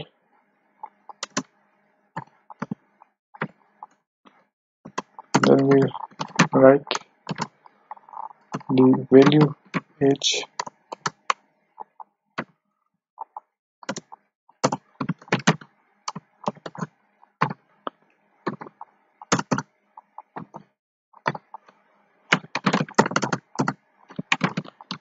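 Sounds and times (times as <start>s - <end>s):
computer keyboard typing: 1.1s - 1.5s, 4.9s - 9.9s, 10.5s - 12.0s, 13.2s - 17.6s, 18.5s - 20.6s, 22.3s - 25.0s.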